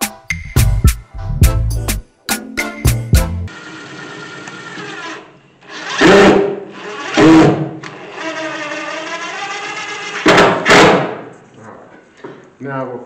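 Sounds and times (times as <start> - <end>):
cordless drill motor whine: 7.8 - 10.3.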